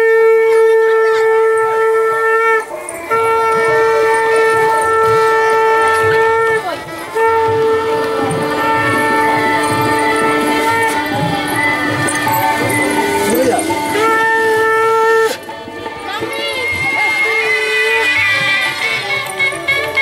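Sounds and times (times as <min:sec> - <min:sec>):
conch shell blasts: 0:00.0 - 0:15.5.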